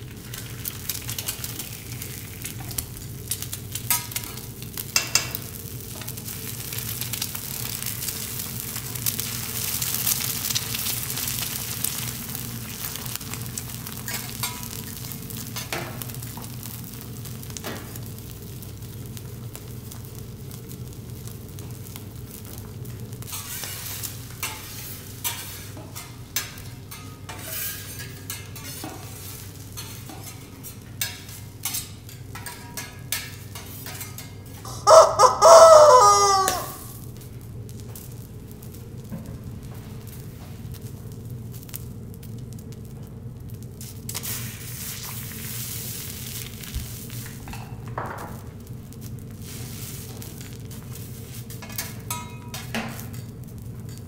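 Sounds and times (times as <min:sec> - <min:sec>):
food sizzling on griddle: 0:00.0 - 0:54.0
metal utensils tapping plate: 0:05.0 - 0:05.4.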